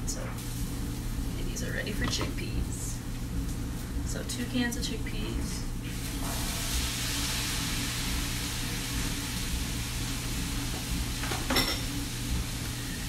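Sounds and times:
chickpeas sizzling in a frying pan: 5.8s - 13.0s.

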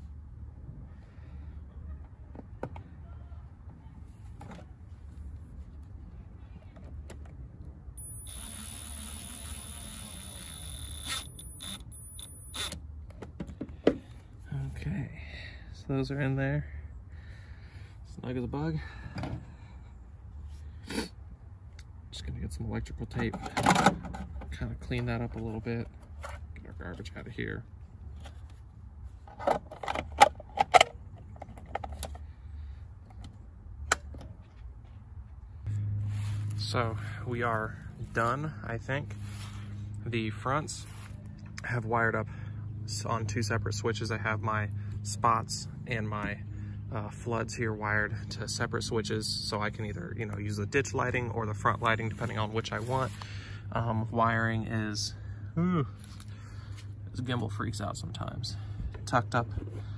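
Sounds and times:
electric screwdriver whining: 8.0s - 12.8s.

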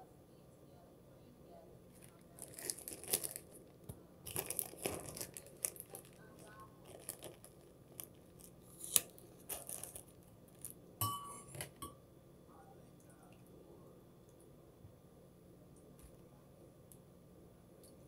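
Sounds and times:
plastic wrap crinkling and tearing: 2.0s - 10.8s.

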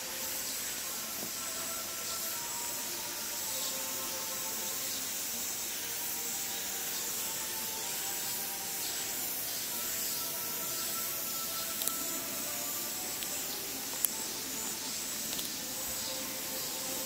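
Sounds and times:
faint high buzz: 0.0s - 17.0s
high background hiss: 0.0s - 17.0s.

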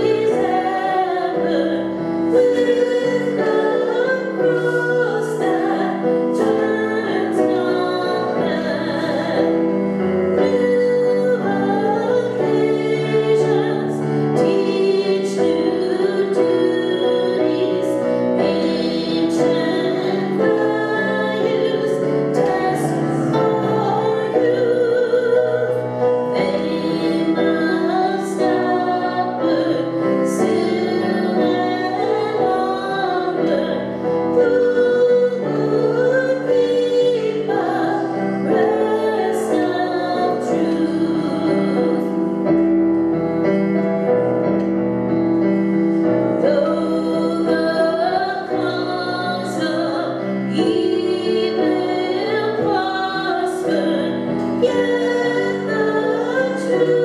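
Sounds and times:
piano accompaniment: 0.0s - 57.0s
voices singing: 10.3s - 42.4s.

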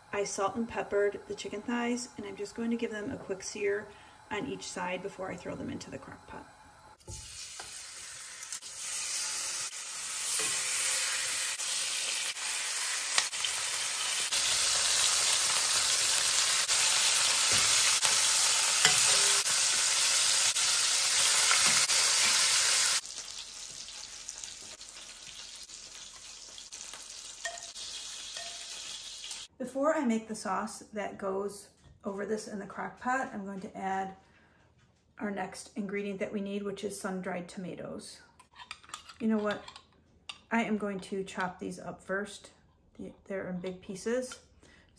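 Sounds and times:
chicken sizzling in a pan: 7.0s - 29.5s.

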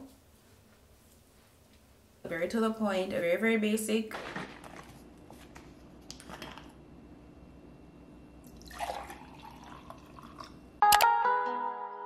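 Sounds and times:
liquid pouring into glass: 8.4s - 10.6s.

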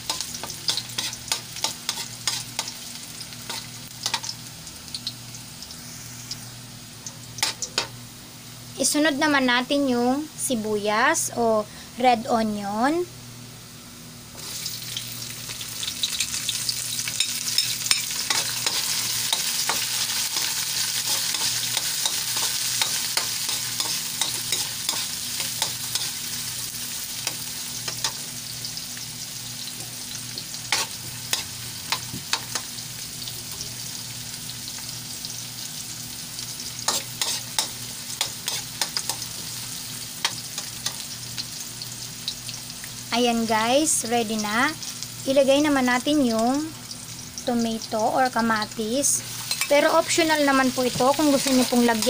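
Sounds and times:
onion sizzling in hot oil: 0.0s - 11.5s, 14.3s - 52.0s
metal spatula scraping wok: 0.1s - 2.7s, 36.9s - 39.3s.

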